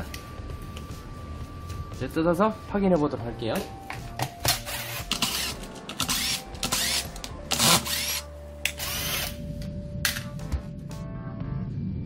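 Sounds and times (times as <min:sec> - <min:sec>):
electric screwdriver whining: 0:04.5 - 0:09.4.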